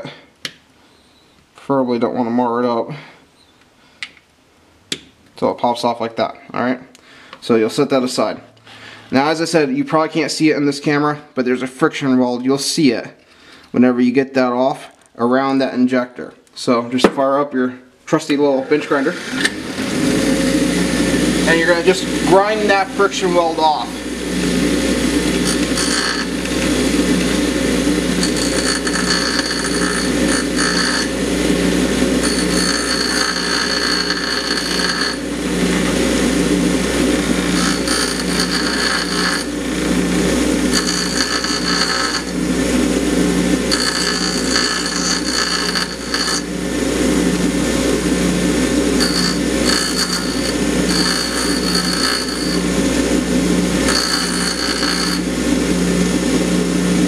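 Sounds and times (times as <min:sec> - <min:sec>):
bench grinder motor running: 0:18.9 - 0:57.0
high-pitched metal grinding hiss: 0:25.4 - 0:26.4, 0:28.2 - 0:31.1, 0:32.2 - 0:35.2, 0:37.4 - 0:39.6, 0:40.7 - 0:42.4, 0:43.7 - 0:46.5, 0:49.0 - 0:52.6, 0:53.8 - 0:55.3.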